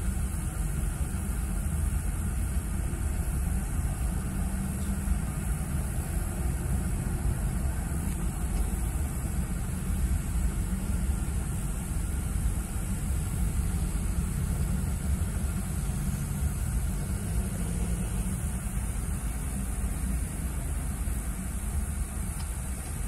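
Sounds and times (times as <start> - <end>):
car idling from inside cabin: 0.0 - 23.0.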